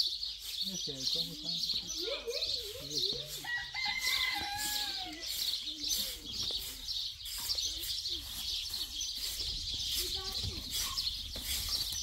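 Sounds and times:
small birds chirping: 0:00.0 - 0:12.0
rooster crowing: 0:03.4 - 0:05.2.

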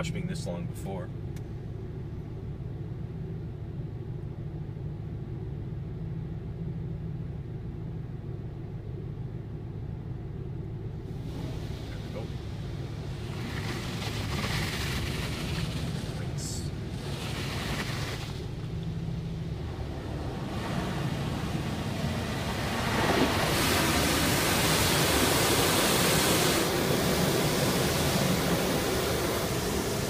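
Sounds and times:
low hum: 0:00.0 - 0:30.0
high-pressure water jets spraying: 0:20.3 - 0:30.0.

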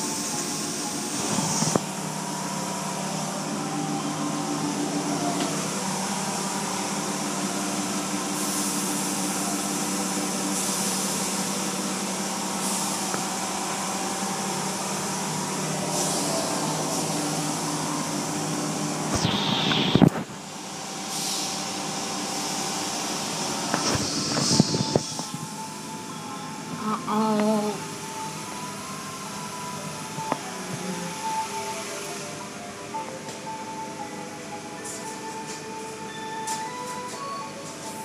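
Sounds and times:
car wash machinery hum: 0:00.0 - 0:38.0.

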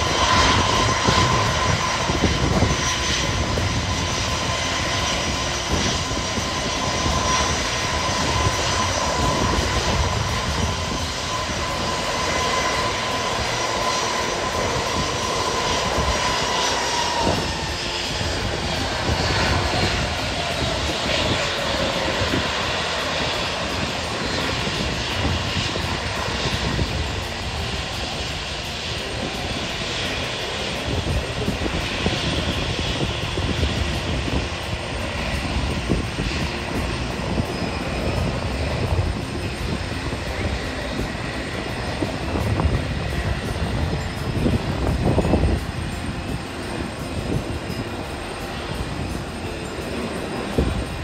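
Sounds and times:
airliner engines roaring: 0:00.0 - 0:51.0.

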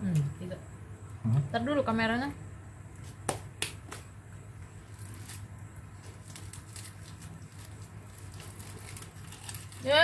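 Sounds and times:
steady low hum: 0:00.0 - 0:10.0
plastic wrapper crinkling: 0:04.8 - 0:10.0.

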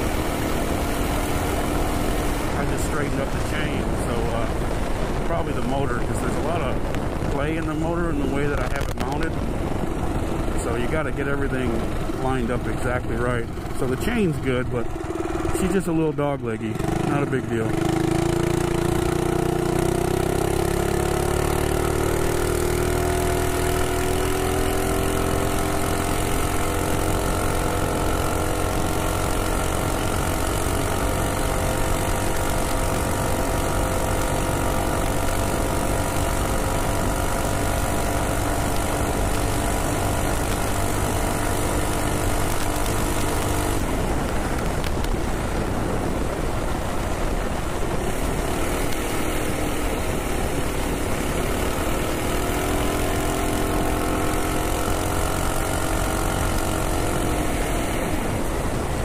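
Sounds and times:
wind noise: 0:00.0 - 0:21.3, 0:28.8 - 0:53.2
single-cylinder engine accelerating: 0:00.0 - 0:59.0.

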